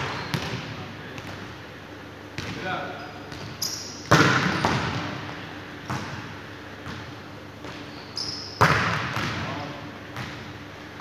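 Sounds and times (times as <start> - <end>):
shoe squeaks: 0.0 - 0.4, 3.0 - 4.6, 7.7 - 8.7
ball bang echoing in hall: 3.4 - 5.2, 8.6 - 10.4.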